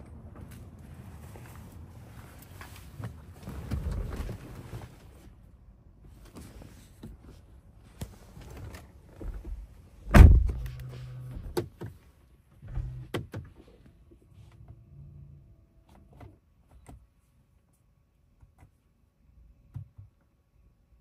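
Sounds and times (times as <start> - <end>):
heavy thump: 10.1 - 10.8.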